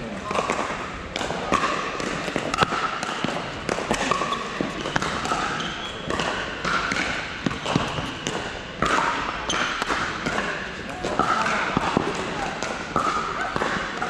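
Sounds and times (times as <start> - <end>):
paddles striking balls: 0.1 - 14.0.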